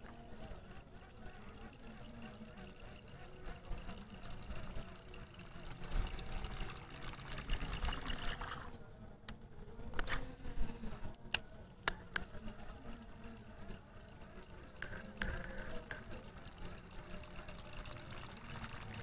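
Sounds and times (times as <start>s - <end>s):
water trickling and pouring: 0.5s - 8.8s, 12.8s - 19.0s.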